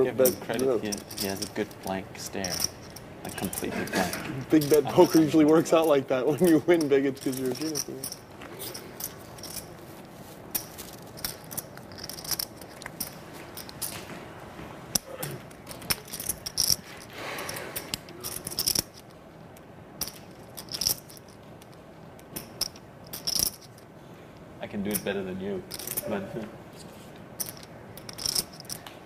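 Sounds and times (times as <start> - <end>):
poker chips clicking together: 10.5 - 13.9, 14.9 - 19.0, 27.4 - 28.9.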